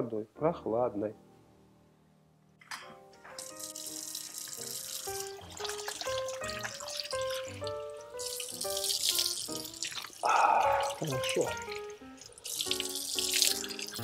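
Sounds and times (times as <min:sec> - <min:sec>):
plucked instrumental music: 0:02.7 - 0:09.8, 0:10.6 - 0:14.0
tap water splashing in sink: 0:03.4 - 0:10.2, 0:10.8 - 0:14.0.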